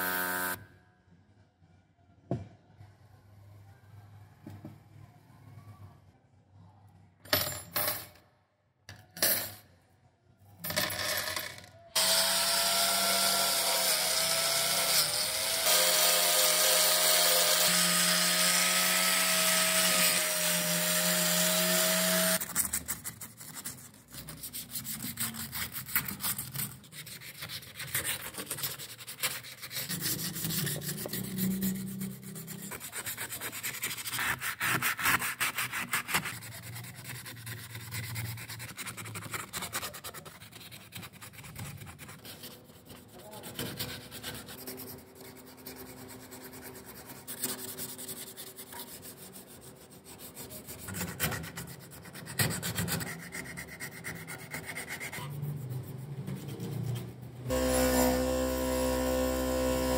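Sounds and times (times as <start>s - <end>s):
angle grinder whining: 0.0s - 0.6s, 12.0s - 22.4s, 57.5s - 59.9s
sandpaper rubbing on metal: 15.6s - 57.6s.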